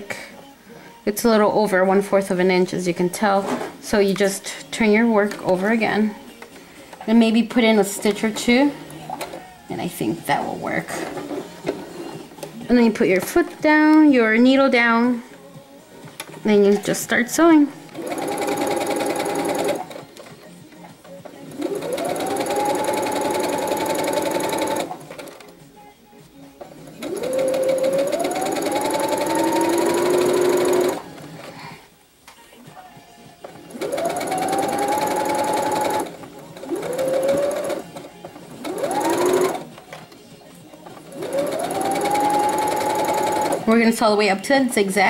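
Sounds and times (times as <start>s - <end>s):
sewing machine stitching: 17.9s - 20.3s, 21.0s - 25.5s, 26.6s - 31.5s, 33.7s - 39.8s, 41.0s - 43.8s.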